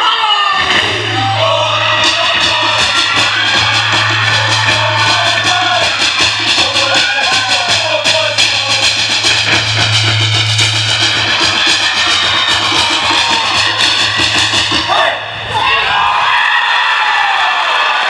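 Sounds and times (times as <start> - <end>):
voices singing: 0.3 - 15.3
fast drumbeat: 0.6 - 15.3
low hum: 9.2 - 14.2.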